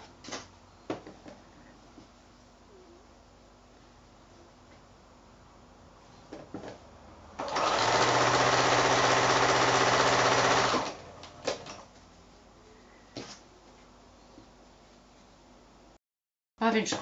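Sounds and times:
sewing machine running: 0:07.4 - 0:11.3.

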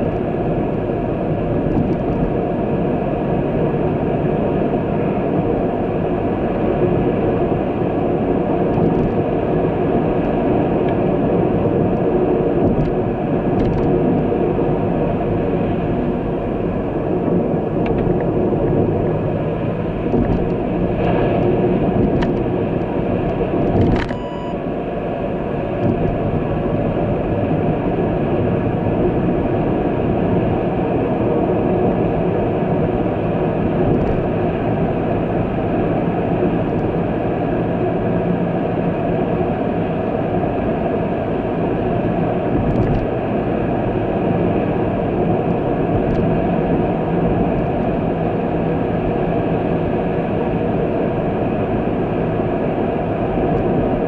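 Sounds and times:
vehicle road rumble: 0:00.0 - 0:54.0
sharp click: 0:23.8 - 0:24.3.

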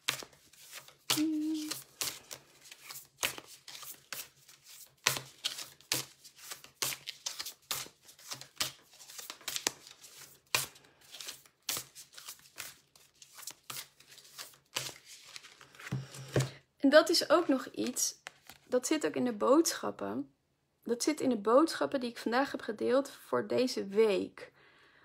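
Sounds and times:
cards being shuffled: 0:00.0 - 0:16.5, 0:17.4 - 0:18.7.

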